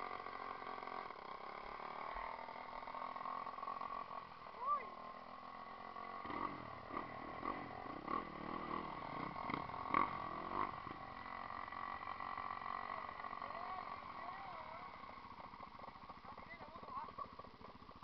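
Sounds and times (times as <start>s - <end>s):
dirt bike engine revving: 0.0s - 18.0s.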